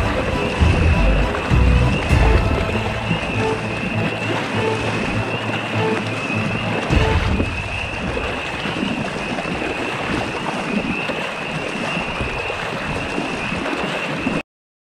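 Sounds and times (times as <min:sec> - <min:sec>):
water lapping around kayak: 0:00.0 - 0:14.4
wind on microphone: 0:06.4 - 0:14.4.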